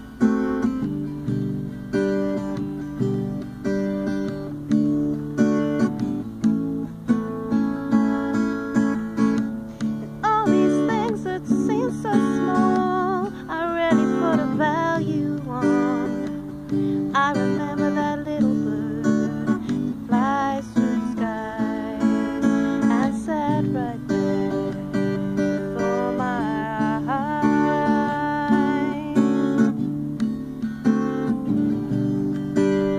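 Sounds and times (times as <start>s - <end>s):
acoustic guitar strumming: 0.0s - 32.9s
woman singing: 9.9s - 30.4s.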